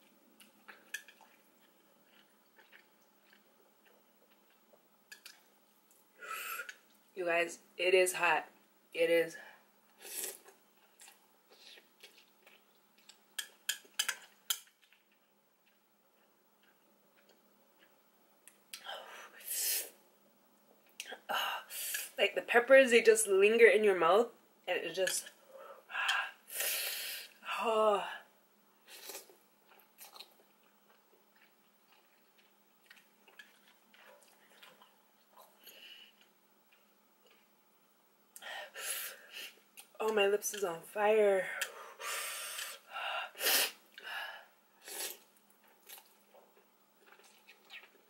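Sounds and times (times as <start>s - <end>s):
wet mouth clicks from chewing: 0.6s - 5.5s, 29.7s - 35.5s, 47.0s - 48.0s.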